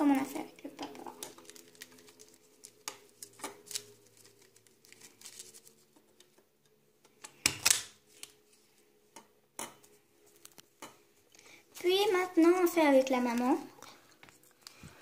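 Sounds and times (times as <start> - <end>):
paper rustling: 1.1 - 6.4.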